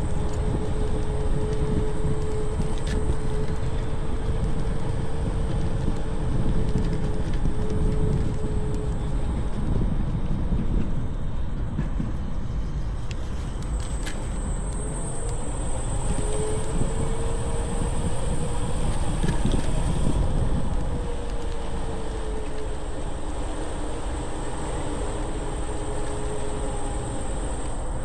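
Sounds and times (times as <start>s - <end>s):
wheels rumbling over pavement: 0.0s - 28.0s
wind on microphone: 0.0s - 28.0s
thin whine: 12.5s - 28.0s.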